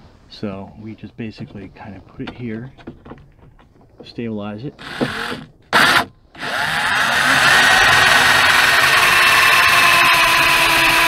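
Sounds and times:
cordless drill whining: 4.8s - 11.0s.

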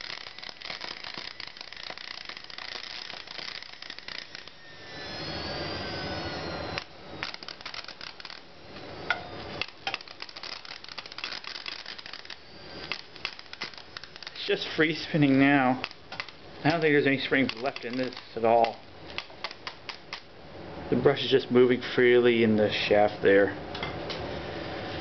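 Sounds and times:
motor whirring whine: 0.0s - 19.6s
small electric motor crackling: 0.0s - 20.3s.

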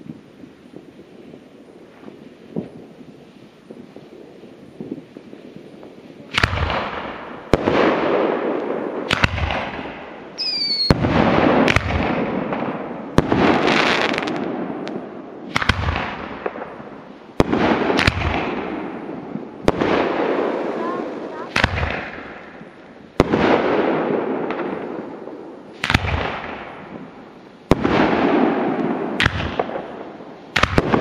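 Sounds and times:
fireworks bangs: 0.0s - 31.0s
fireworks crackling: 0.0s - 31.0s
falling whistle: 10.4s - 11.0s.

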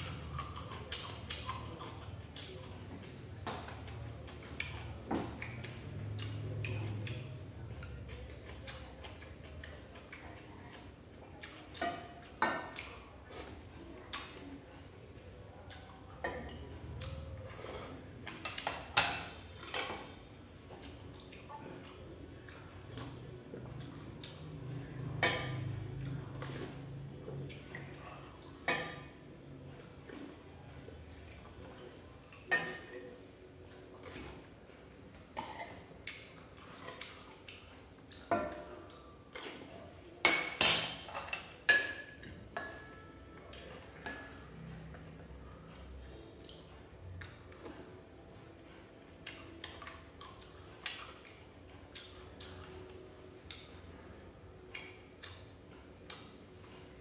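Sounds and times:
utensils clinking on bowls: 40.2s - 44.4s.

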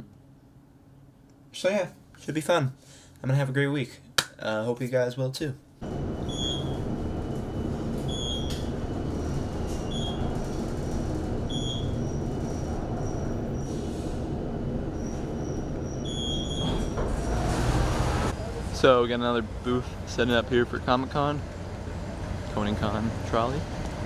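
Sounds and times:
train rumbling on rails: 5.8s - 24.0s
thin high squeal: 11.5s - 14.2s.

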